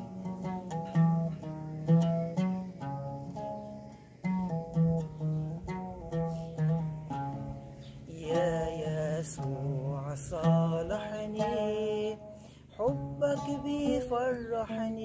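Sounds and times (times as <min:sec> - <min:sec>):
oud plucking melody: 0:00.0 - 0:15.0
man singing: 0:08.1 - 0:15.0.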